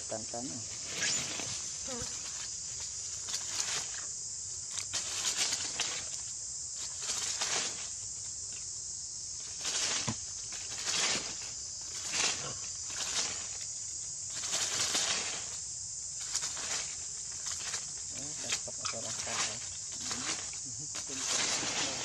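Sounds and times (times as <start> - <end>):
high insect buzz: 0.0 - 22.0
dry leaves rustling: 0.7 - 8.7, 9.3 - 22.0.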